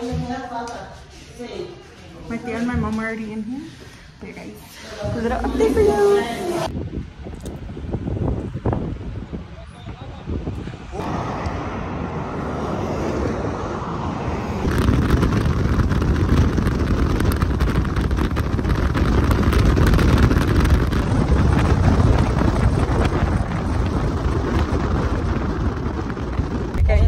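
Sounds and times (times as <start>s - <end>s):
wind buffeting microphone: 5.0s - 27.0s
car road noise: 6.5s - 27.0s.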